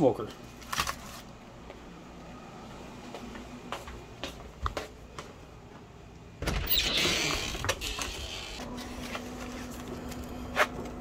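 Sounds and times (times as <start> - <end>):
foil pan rustling and crinkling: 0.5 - 1.3.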